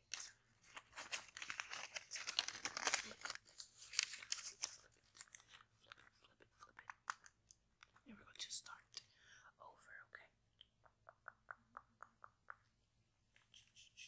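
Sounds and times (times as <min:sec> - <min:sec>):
paper crackling and tearing: 0:00.1 - 0:05.6.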